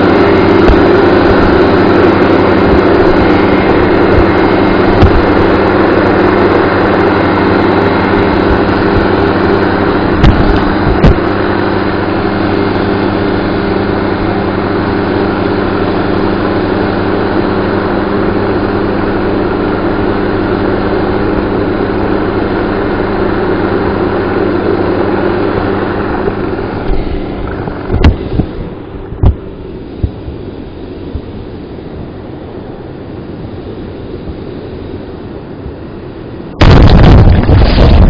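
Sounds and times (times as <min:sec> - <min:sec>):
helicopter engine and rotor hum: 0:00.0 - 0:38.0
sharp thumps: 0:02.7 - 0:05.5, 0:10.0 - 0:11.4, 0:25.6 - 0:30.2, 0:36.6 - 0:38.0.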